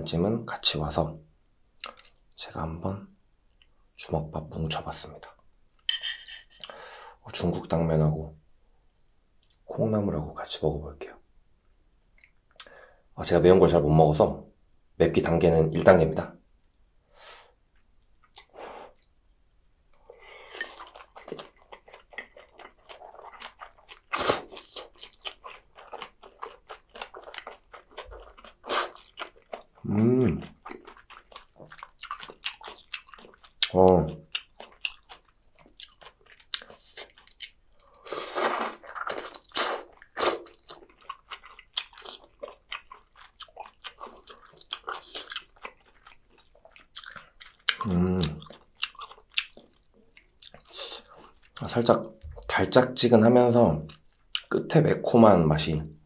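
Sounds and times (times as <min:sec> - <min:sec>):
wet chewing mouth sounds: 0:20.5 - 0:52.5.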